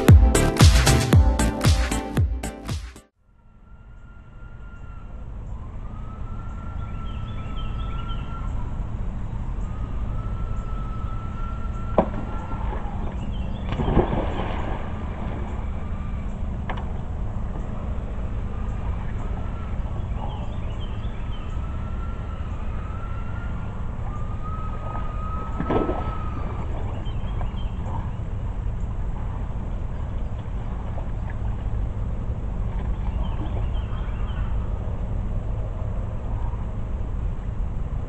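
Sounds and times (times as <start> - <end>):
steady low rumble: 0.0 - 38.0.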